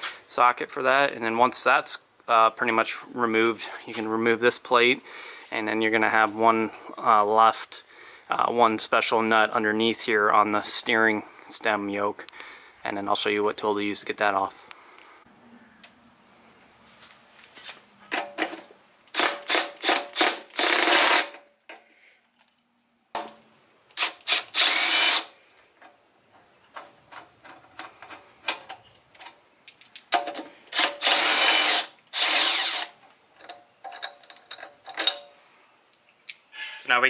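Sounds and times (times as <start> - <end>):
power drill spinning bolts: 19.1 - 21.4, 23.9 - 25.3, 30.2 - 35.2.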